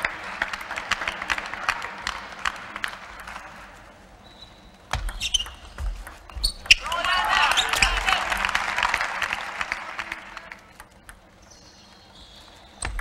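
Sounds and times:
spectators applauding: 0.0s - 3.7s, 6.8s - 10.8s.

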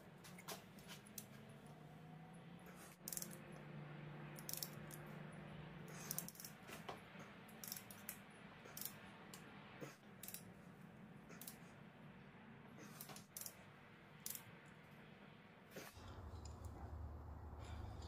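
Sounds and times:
faint steady low hum: 0.0s - 18.0s
ratchet clicking on bolts: 3.0s - 3.4s, 4.4s - 5.0s, 7.6s - 9.0s, 10.2s - 10.4s.

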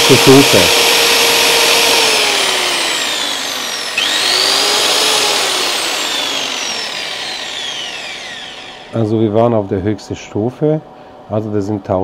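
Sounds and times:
electric drill motor whine: 0.0s - 9.1s.

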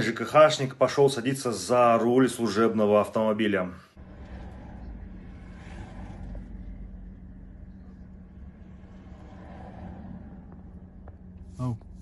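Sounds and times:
car engine idling: 4.0s - 12.0s.

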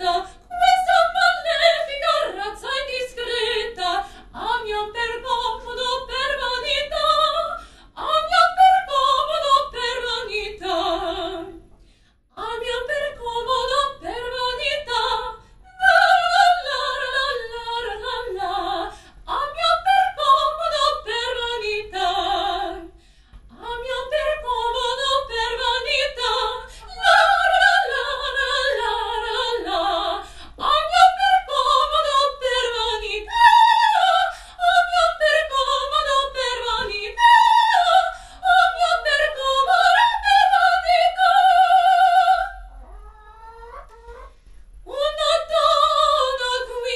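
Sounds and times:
woman singing opera: 0.0s - 11.6s, 12.4s - 43.0s, 44.9s - 46.9s
singer breathing: 7.6s - 8.0s, 11.7s - 12.3s, 18.9s - 19.2s, 23.0s - 23.5s, 26.7s - 26.9s, 30.2s - 30.6s, 38.2s - 38.4s.

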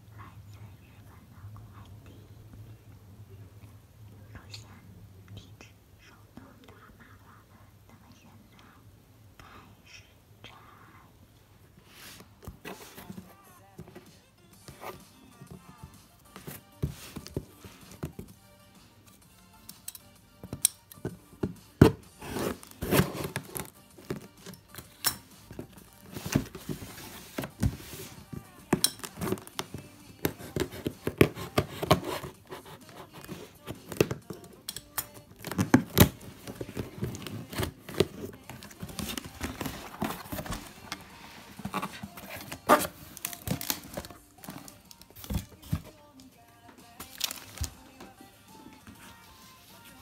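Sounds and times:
scissors cutting tape: 28.8s - 39.2s
cardboard box torn open: 41.7s - 45.5s, 47.1s - 47.7s.

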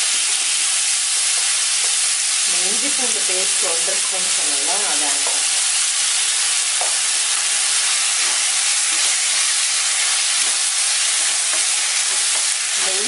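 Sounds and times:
vegetables sizzling in hot oil: 0.0s - 13.0s
spatula stirring: 0.2s - 2.5s, 5.0s - 12.9s.

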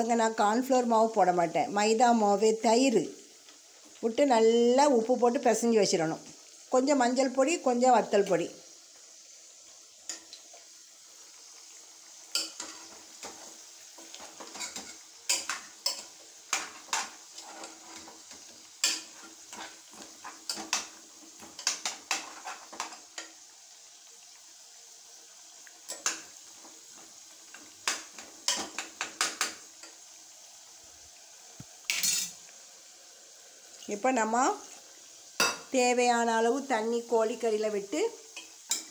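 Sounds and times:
faint sizzle: 0.0s - 38.9s
spoon clanking and scraping pot: 12.3s - 23.4s, 25.9s - 30.0s, 31.9s - 32.4s, 35.4s - 35.7s, 38.4s - 38.9s.

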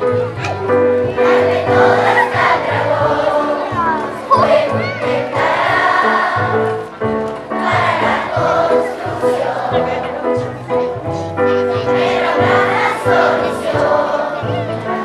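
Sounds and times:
instrumental accompaniment: 0.0s - 15.0s
children's choir singing: 0.7s - 15.0s.

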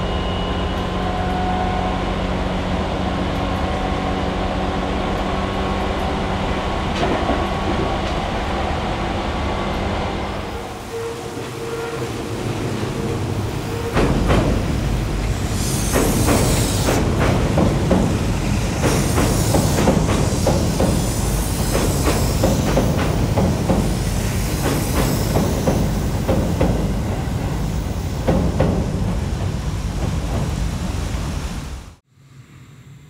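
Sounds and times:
train wheels rumbling on rails: 0.0s - 32.0s
high hiss: 14.5s - 32.9s.

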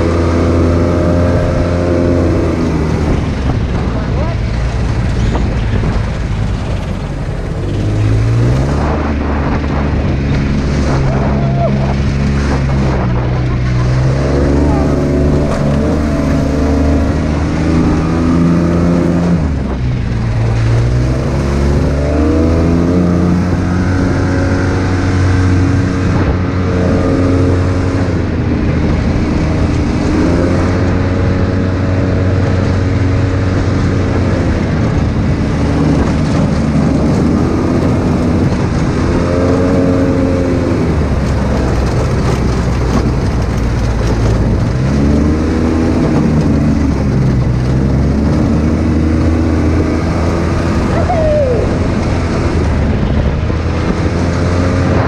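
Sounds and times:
vehicle engine running: 0.0s - 55.0s
wind and tyre noise: 0.0s - 55.0s.

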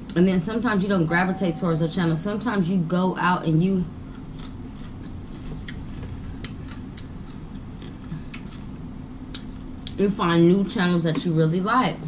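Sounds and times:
steady low hum: 0.0s - 12.0s
person chewing food: 4.1s - 10.0s.

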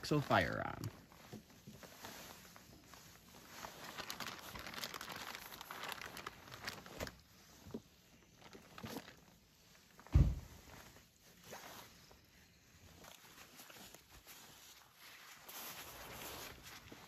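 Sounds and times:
plastic bag crinkling: 0.0s - 10.1s
dull thump: 10.0s - 10.6s.

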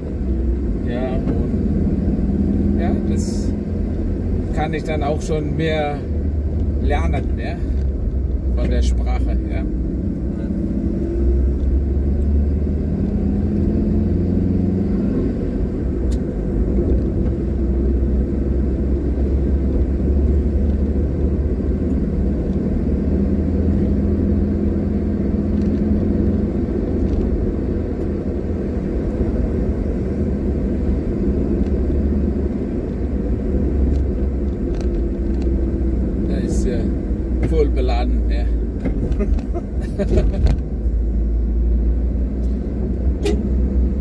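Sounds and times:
car engine and tyre rumble: 0.0s - 44.0s.

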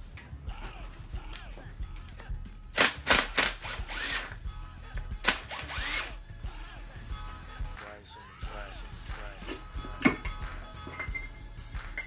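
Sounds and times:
cordless impact tool bursts: 2.8s - 4.4s, 5.2s - 6.2s.

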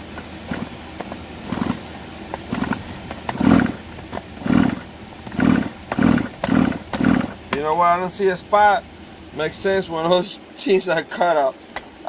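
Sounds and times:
chainsaw recoil starter pulls: 0.2s - 1.8s, 2.4s - 7.6s.

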